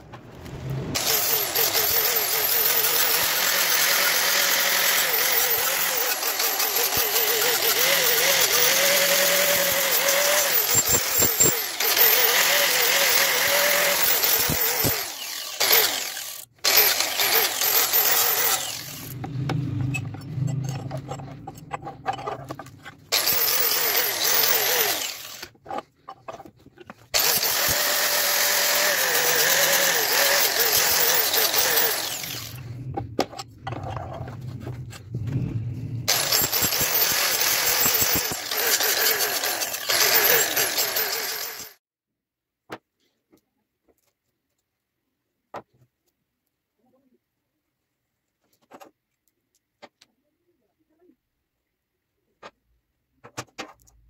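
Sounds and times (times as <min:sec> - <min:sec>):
angle grinder grinding steel: 0:00.9 - 0:34.6, 0:36.0 - 0:41.8.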